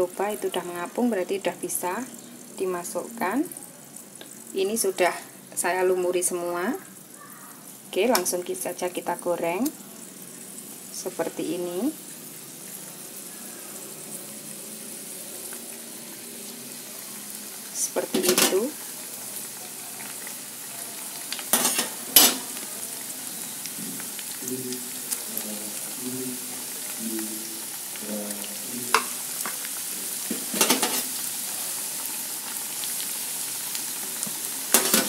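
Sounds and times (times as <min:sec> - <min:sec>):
food deep-frying in oil: 0:00.0 - 0:35.0.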